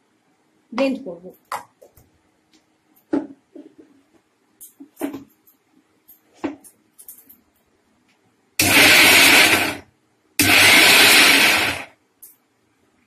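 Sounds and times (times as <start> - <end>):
electric blender running: 8.6 - 9.8, 10.4 - 11.9.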